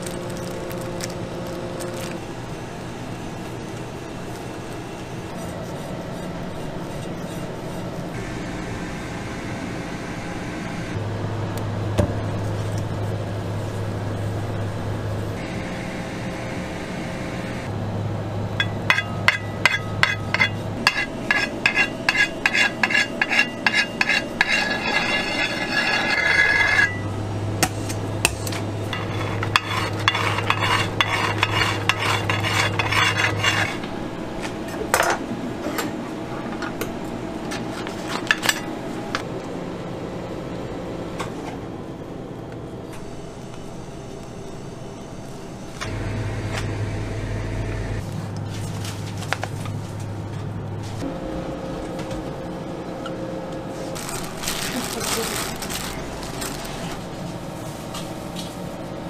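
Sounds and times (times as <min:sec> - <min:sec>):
low steady hum: 0:00.0 - 0:59.0
spatula scraping metal turntable: 0:05.3 - 0:08.1, 0:18.6 - 0:27.1, 0:28.8 - 0:33.9.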